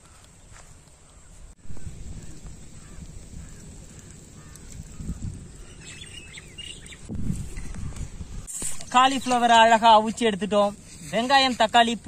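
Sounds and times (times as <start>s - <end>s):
birds calling: 0.0s - 10.2s
wind rumble on microphone: 1.4s - 9.5s.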